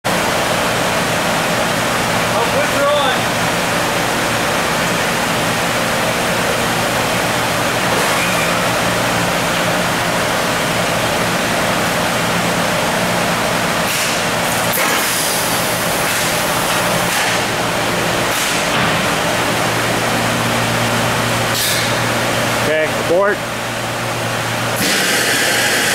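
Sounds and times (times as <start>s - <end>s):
cooling fans rushing: 0.0s - 25.9s
low machine hum: 0.1s - 25.9s
air hissing: 24.8s - 25.9s.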